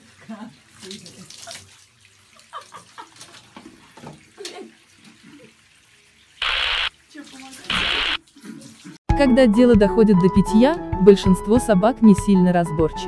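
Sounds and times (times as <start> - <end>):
water running into bathtub: 0.0 - 9.0
sudden loud burst of noise: 7.7 - 8.2.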